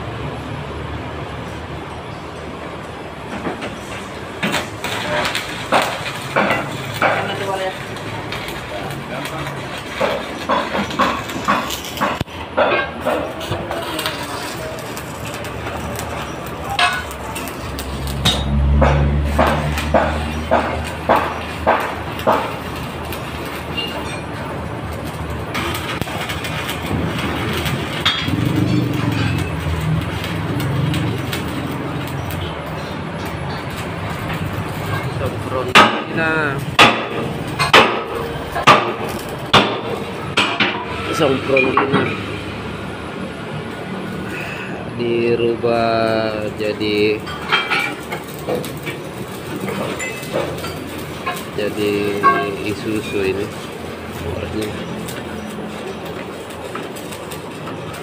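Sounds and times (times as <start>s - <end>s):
hammer striking metal: 10.0s - 13.4s, 16.7s - 22.8s, 32.4s - 42.3s, 49.6s - 53.1s.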